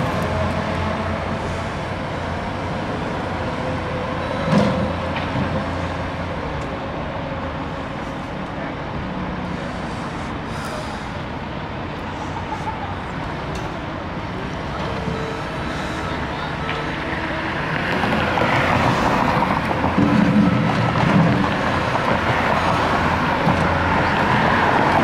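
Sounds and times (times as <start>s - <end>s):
diesel loader engines running: 0.0s - 25.0s
road traffic: 0.0s - 25.0s.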